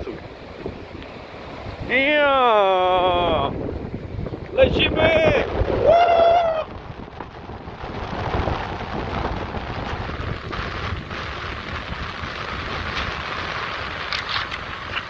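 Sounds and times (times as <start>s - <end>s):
wind buffeting microphone: 0.0s - 15.0s
waves breaking on pebbly shore: 6.7s - 15.0s.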